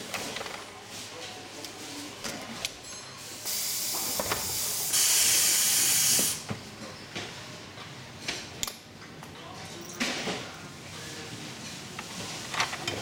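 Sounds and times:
compressed air hissing: 0:03.5 - 0:06.4.

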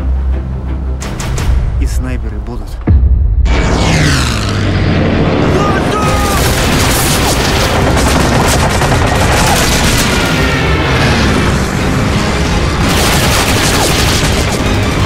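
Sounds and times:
dramatic music: 0:00.0 - 0:15.0
machine-gun fire: 0:06.4 - 0:10.7, 0:12.8 - 0:15.0.

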